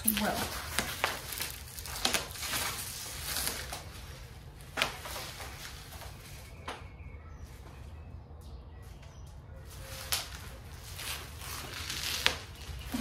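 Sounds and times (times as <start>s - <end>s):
bubble wrap rustling and crinkling: 0.0s - 7.9s, 9.6s - 13.0s.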